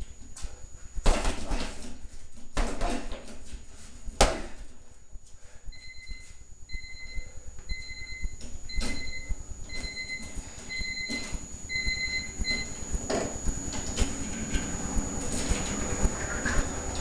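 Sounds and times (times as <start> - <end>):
timer beeping: 5.7 - 15.2.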